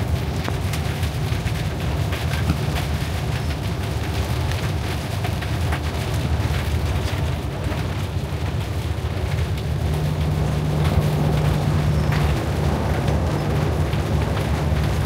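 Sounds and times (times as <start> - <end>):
raindrops tapping on windshield: 0.0 - 15.0
vehicle engine and road rumble: 0.0 - 15.0
steady low hum: 6.8 - 15.0.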